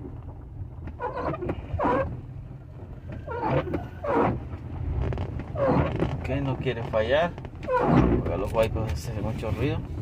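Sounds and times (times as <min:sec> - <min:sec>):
engine and road rumble: 0:00.0 - 0:10.0
windshield wipers squeaking: 0:00.7 - 0:10.0.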